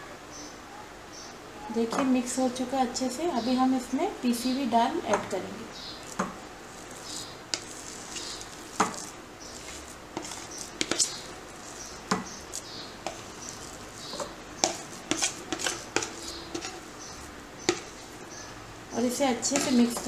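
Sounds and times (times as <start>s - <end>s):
spoon scraping a glass bowl: 5.9s - 18.3s, 19.4s - 20.0s.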